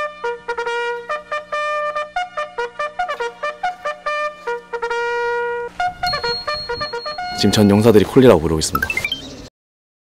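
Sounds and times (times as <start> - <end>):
trumpet playing bugle call: 0.0 - 7.9.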